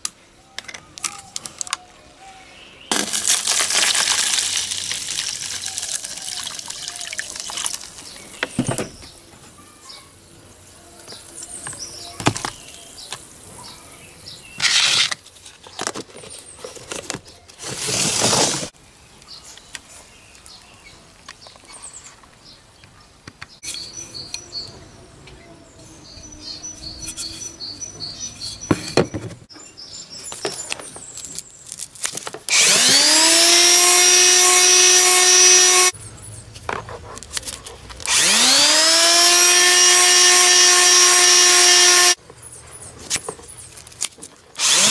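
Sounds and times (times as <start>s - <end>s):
electric sander motor whining: 32.5s - 35.9s, 38.1s - 42.2s, 44.6s - 44.9s.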